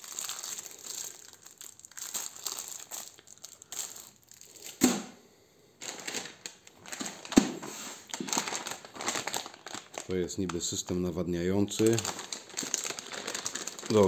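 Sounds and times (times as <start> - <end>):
plastic bag rustling: 0.0 - 4.8, 5.8 - 14.0
plastic packaging crinkling: 0.0 - 4.8, 5.8 - 14.0
sharp thump: 4.8 - 5.2.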